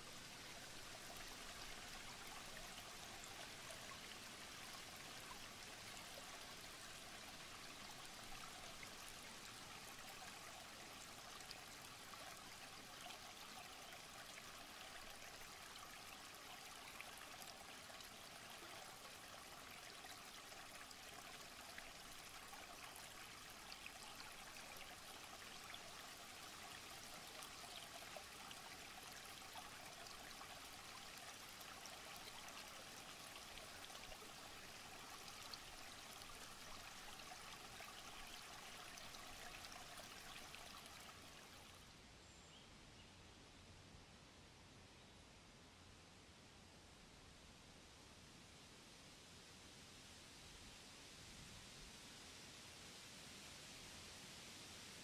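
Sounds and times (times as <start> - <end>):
stream running over stones: 0.0 - 41.9.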